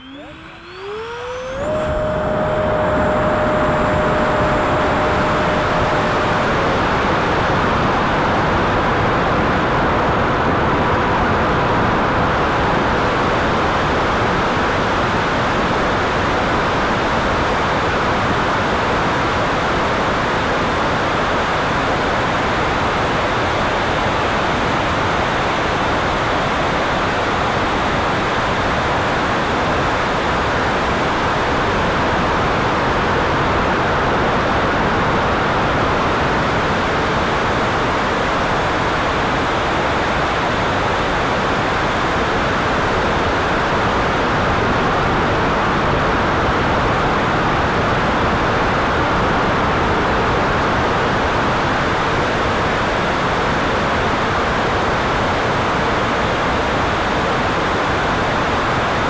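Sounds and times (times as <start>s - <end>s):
electric ducted fan running: 0.0s - 15.5s.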